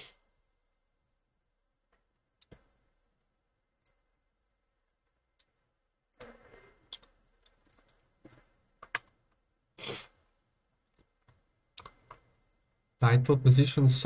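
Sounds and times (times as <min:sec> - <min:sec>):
computer clicks and rustles: 0:05.4 - 0:09.2.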